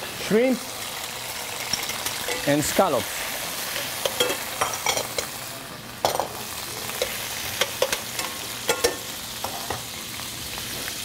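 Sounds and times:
seafood sizzling in oil: 0:00.0 - 0:11.0
utensil clinking against pan: 0:07.0 - 0:09.0.

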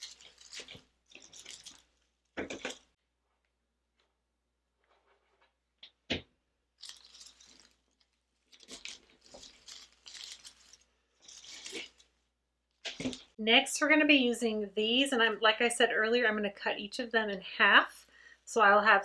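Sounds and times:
artificial leaves rustling and scraping: 0:00.0 - 0:02.1, 0:06.8 - 0:12.2.

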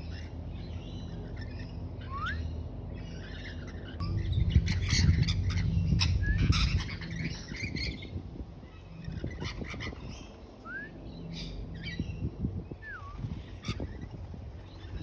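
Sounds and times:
low rumble: 0:00.0 - 0:15.0
rising whistles: 0:10.6 - 0:11.2, 0:12.8 - 0:13.4.

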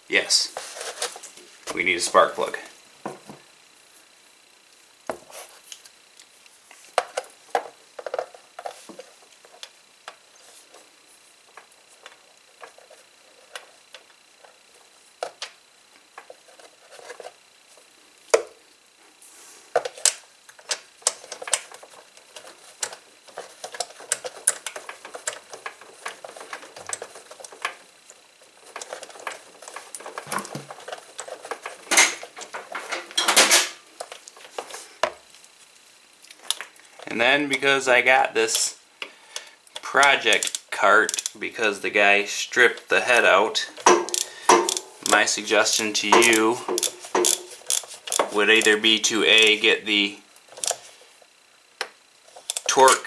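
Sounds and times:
socket wrench ratcheting: 0:40.0 - 0:41.4, 0:43.8 - 0:48.8, 0:50.6 - 0:50.8, 0:52.4 - 0:52.7
metal tools clinking: 0:43.8 - 0:48.8.

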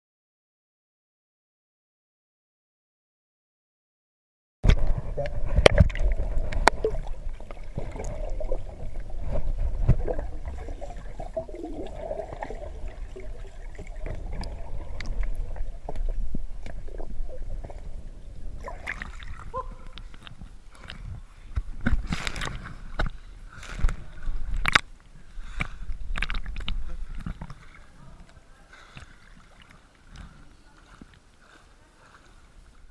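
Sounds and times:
muffled underwater gurgling: 0:04.7 - 0:19.9
sharp splashes: 0:18.6 - 0:20.0.

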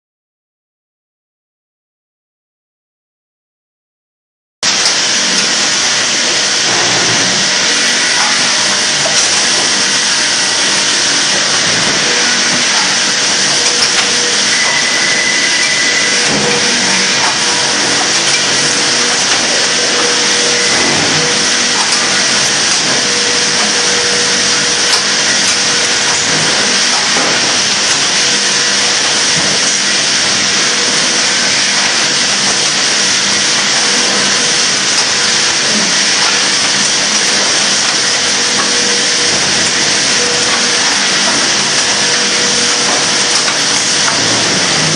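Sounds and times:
loud hissing machinery noise: 0:04.6 - 0:44.9.

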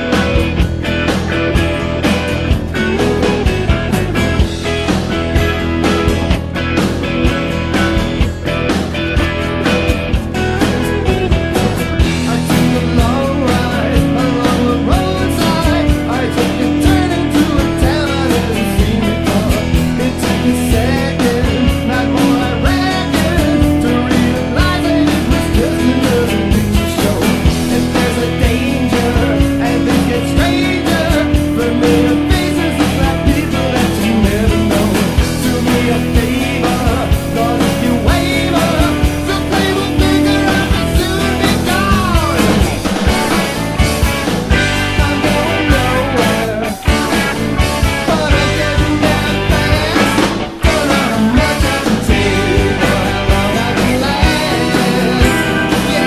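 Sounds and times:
rock band playing: 0:00.0 - 0:56.0
steady drum beat: 0:00.0 - 0:56.0.

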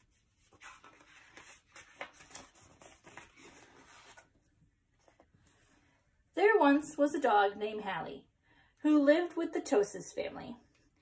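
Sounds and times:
book pages turning: 0:00.0 - 0:04.4.

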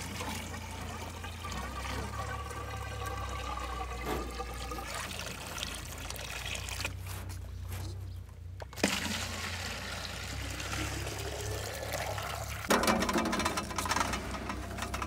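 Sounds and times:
water trickling into a container: 0:00.0 - 0:07.2, 0:08.8 - 0:12.7.

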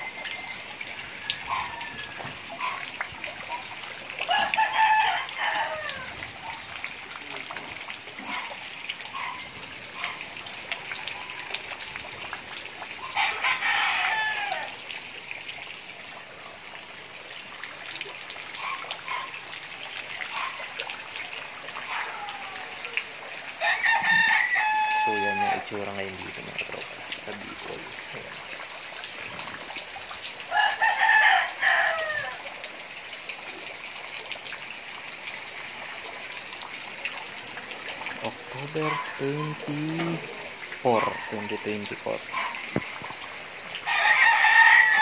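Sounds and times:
rooster crowing: 0:00.0 - 0:02.8, 0:04.2 - 0:06.2, 0:13.0 - 0:14.8, 0:23.6 - 0:25.7, 0:30.5 - 0:32.5, 0:43.8 - 0:45.0
water noise: 0:00.0 - 0:45.0.

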